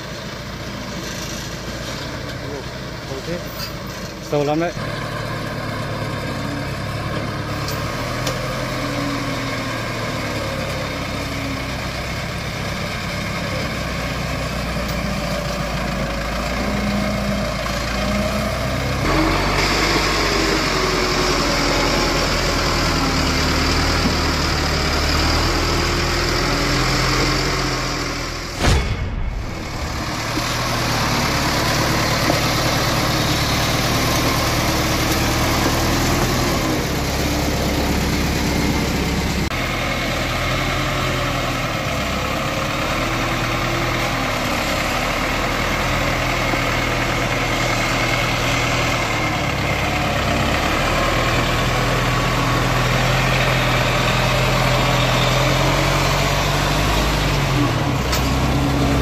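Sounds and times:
truck engine running under load: 0:00.0 - 0:59.0
sharp knock: 0:28.5 - 0:30.7.

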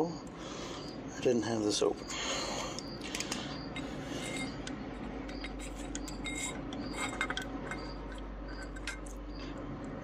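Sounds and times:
metal tools clinking and rubbing: 0:03.1 - 0:09.2.

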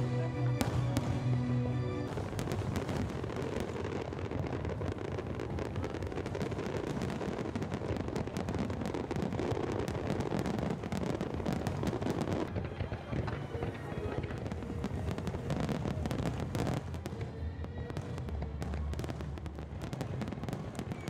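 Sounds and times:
fireworks bursts and crackles: 0:00.0 - 0:21.0
continuous low rumble: 0:12.4 - 0:21.0.

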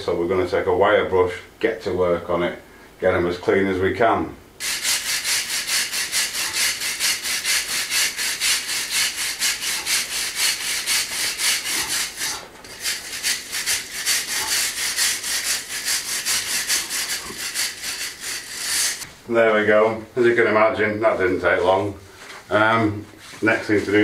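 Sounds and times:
wire brush scrubbing stone: 0:04.6 - 0:19.1, 0:23.2 - 0:24.0.

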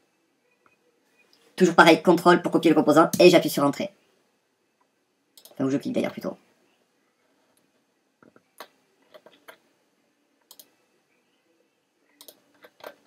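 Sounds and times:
computer mouse clicks: 0:05.4 - 0:05.6, 0:10.4 - 0:10.8, 0:12.2 - 0:13.0.

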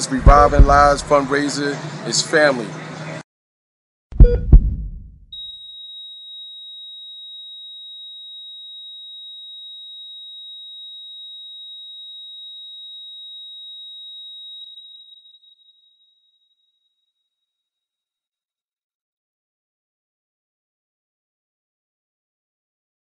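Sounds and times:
heart monitor flatline tone: 0:00.2 - 0:01.1, 0:04.2 - 0:05.5.

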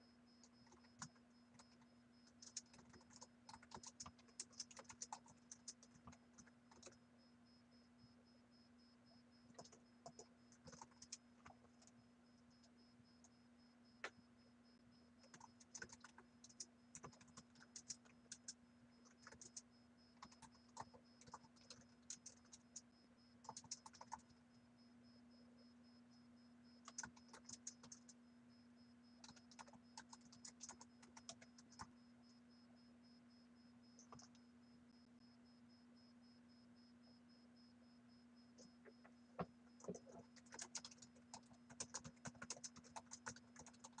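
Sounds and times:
steady low hum: 0:00.0 - 0:44.0
typing on a keyboard: 0:00.6 - 0:07.0, 0:09.5 - 0:11.9, 0:15.2 - 0:19.6, 0:20.2 - 0:22.8, 0:23.4 - 0:24.3, 0:26.8 - 0:28.2, 0:29.2 - 0:31.9, 0:34.0 - 0:34.4, 0:39.8 - 0:44.0.

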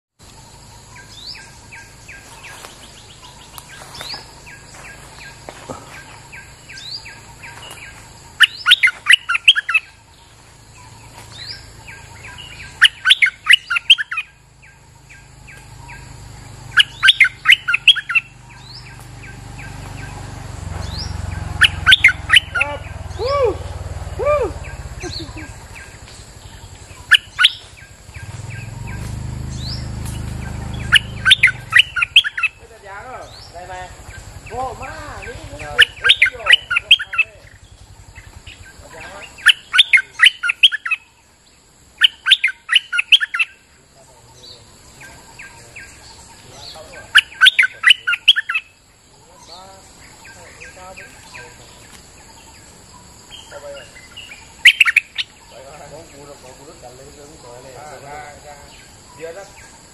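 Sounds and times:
faint bird chirps: 0:00.2 - 0:59.9
low whistled notes: 0:16.0 - 0:26.0, 0:27.0 - 0:32.6.

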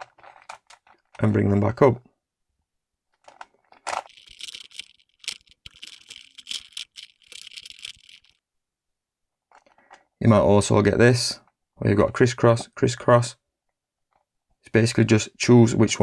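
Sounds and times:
puzzle cube twisting clicks: 0:03.8 - 0:08.4.

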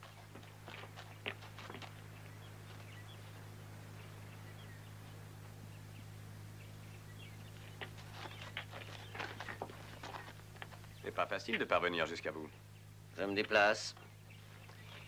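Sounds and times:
steady low hum: 0:00.0 - 0:15.0
faint bird chirps: 0:13.9 - 0:15.0.

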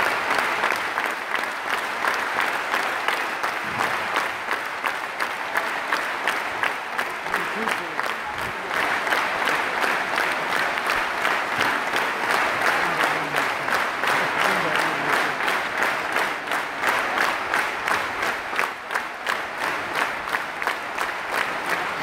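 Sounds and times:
crowd applauding: 0:00.0 - 0:22.0
faint voices: 0:07.2 - 0:16.2.

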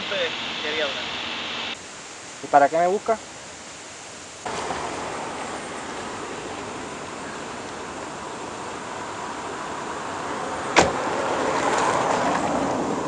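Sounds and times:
road noise: 0:00.0 - 0:13.0
car approaching: 0:04.4 - 0:13.0.

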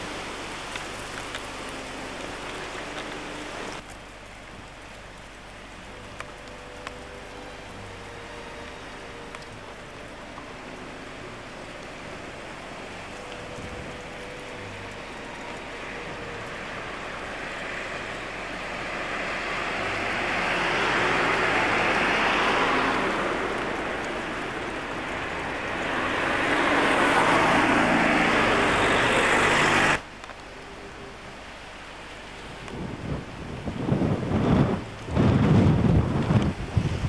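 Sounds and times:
cars driving past: 0:05.9 - 0:30.0.

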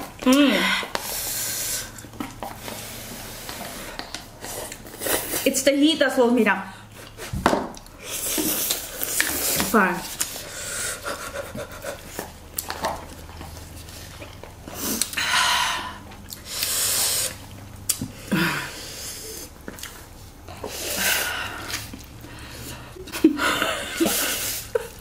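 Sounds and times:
noodles slurping: 0:00.8 - 0:05.6, 0:06.9 - 0:15.2, 0:16.2 - 0:22.9
chewing and mouth sounds: 0:06.9 - 0:15.2, 0:16.0 - 0:18.2, 0:19.4 - 0:20.7.

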